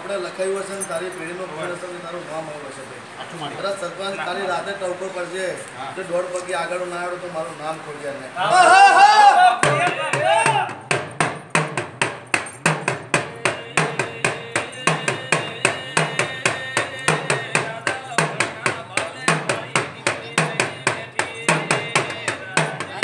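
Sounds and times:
drum beaten with stick: 9.6s - 23.0s.

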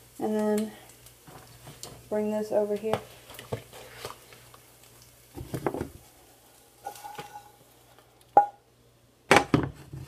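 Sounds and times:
pan handling shuffle: 6.8s - 7.5s.

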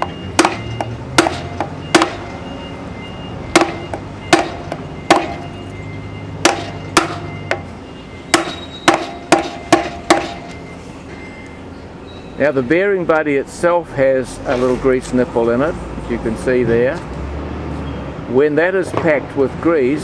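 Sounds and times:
hammer blows on wooden block: 0.0s - 2.3s, 3.5s - 5.4s, 6.4s - 7.7s, 8.3s - 10.5s.

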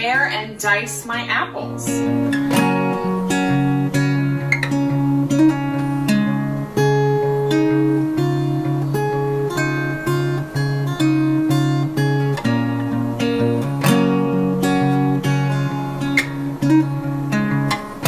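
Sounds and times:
acoustic guitar picking: 0.0s - 18.0s.

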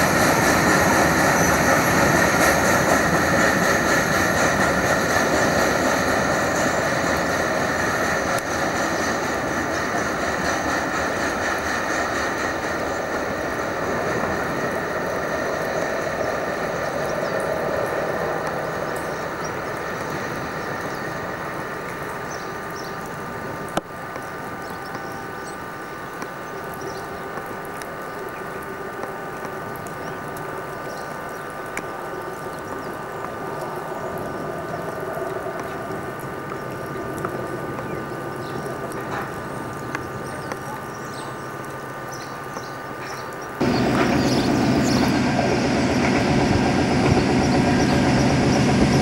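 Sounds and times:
freight train rolling on rails: 0.0s - 49.0s
high ringing tones: 20.4s - 33.0s.

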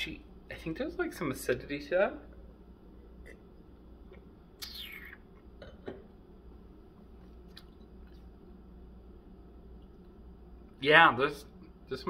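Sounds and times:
lip smack: 4.6s - 5.2s
sucking slurp: 4.6s - 5.4s.

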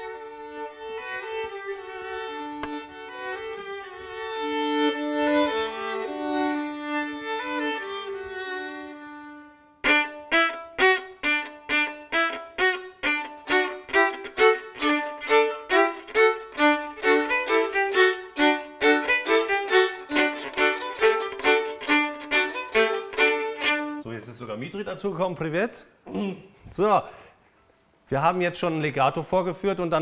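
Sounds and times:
violins playing hammered strokes: 0.0s - 24.0s.

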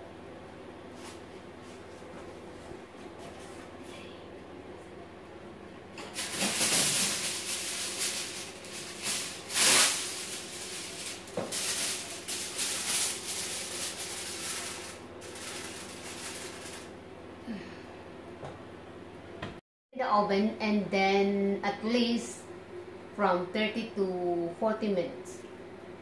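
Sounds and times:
aluminium foil crinkling: 6.1s - 16.9s.

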